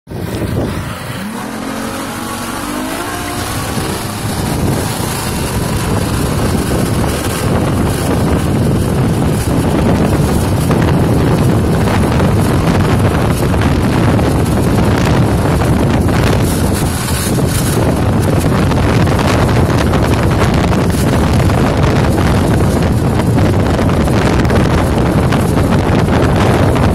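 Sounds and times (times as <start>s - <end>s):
outboard motor running at speed: 0.1s - 26.9s
rush of boat wake: 0.1s - 26.9s
wind buffeting microphone: 0.1s - 26.9s.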